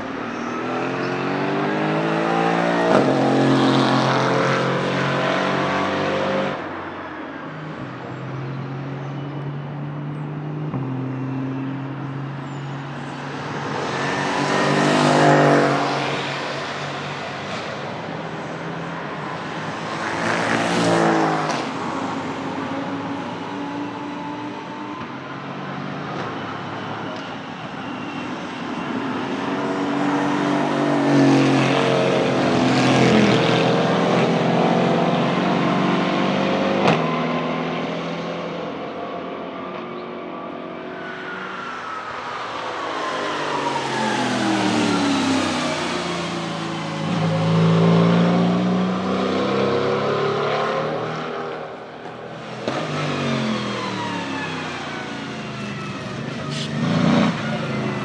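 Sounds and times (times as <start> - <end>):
race cars passing: 0.0 - 58.0.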